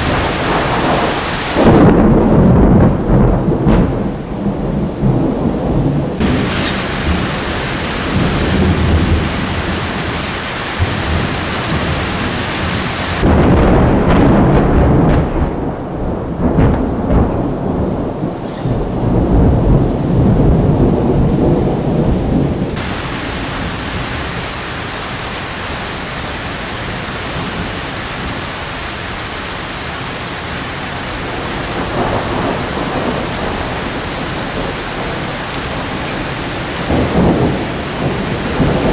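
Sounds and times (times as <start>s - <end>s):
deep rolling thunder: 0.0s - 28.4s, 30.1s - 38.9s
heavy rain: 0.0s - 38.9s.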